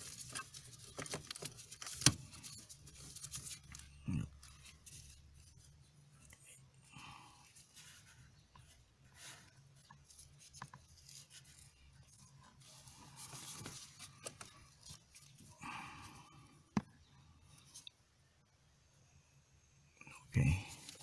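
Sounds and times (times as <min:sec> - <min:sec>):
gloved hand rubbing and scraping: 0:00.0 - 0:16.2.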